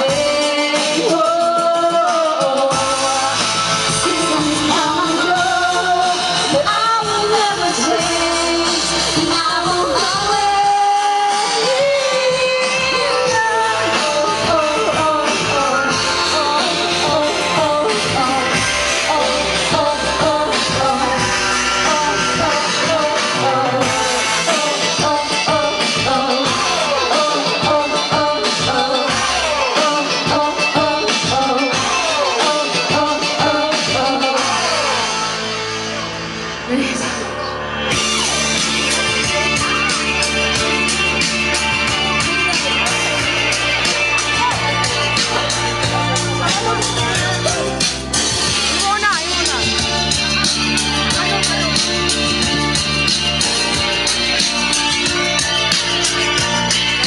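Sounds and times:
women singing: 0.0 - 35.3
live band playing: 0.0 - 57.0.

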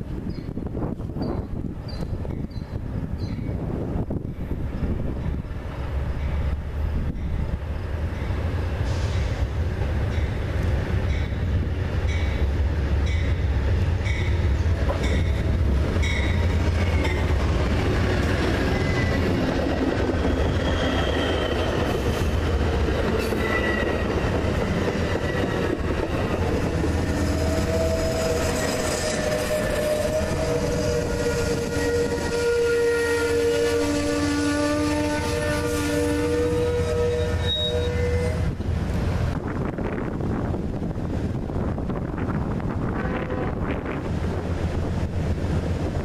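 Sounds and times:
diesel locomotive rumbling: 0.0 - 46.0
train wheels squealing: 1.2 - 3.6, 18.6 - 19.4, 20.0 - 22.4, 23.1 - 38.4
locomotive bell ringing: 12.1 - 17.4, 18.7 - 19.3.

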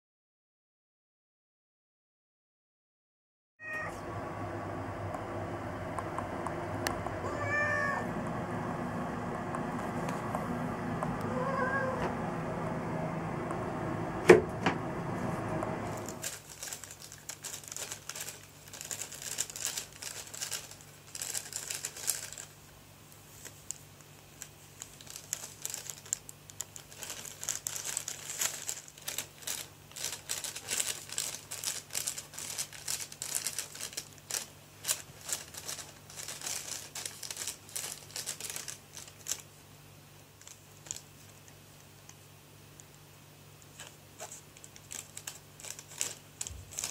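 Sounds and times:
plastic bag crinkling: 16.0 - 39.6, 40.3 - 41.6, 43.7 - 46.9.

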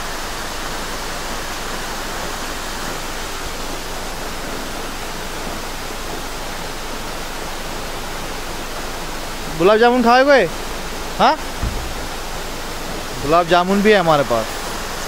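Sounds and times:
steady rushing noise: 9.4 - 15.0.

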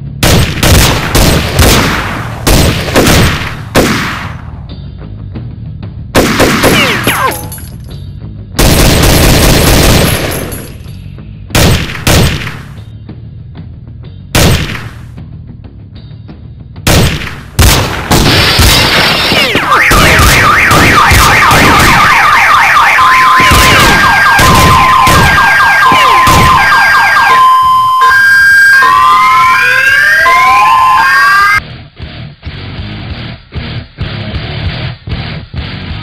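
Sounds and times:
gunshots: 0.2 - 4.6, 6.2 - 7.6, 8.6 - 10.9, 11.5 - 12.8, 14.4 - 15.1, 16.9 - 27.6
car alarms: 19.2 - 31.6.

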